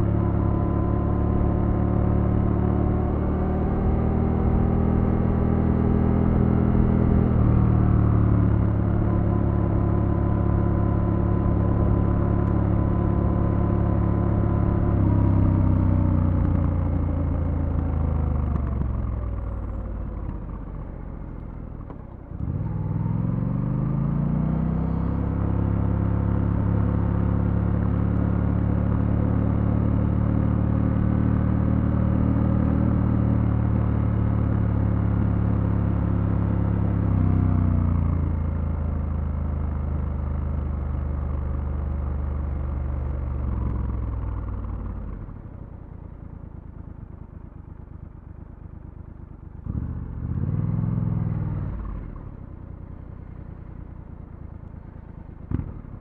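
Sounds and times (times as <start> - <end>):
motorcycle engine rev: 22.4 - 45.4, 49.2 - 52.4, 55.4 - 56.0.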